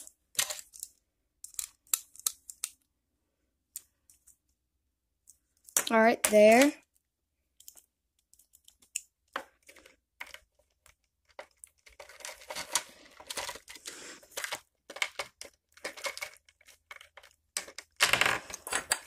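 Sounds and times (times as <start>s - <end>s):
plastic parts clicking and rustling: 0.0s - 2.9s, 5.2s - 19.0s.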